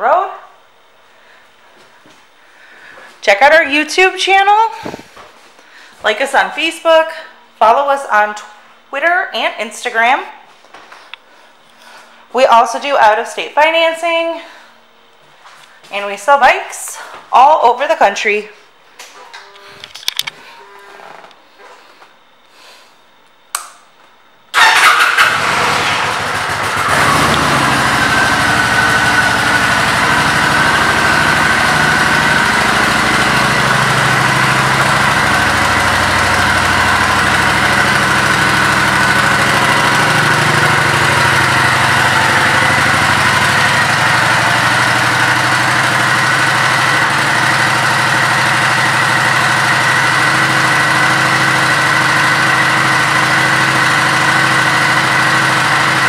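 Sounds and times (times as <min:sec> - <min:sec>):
motorcycle engine starting and idling: 0:24.5 - 0:56.0.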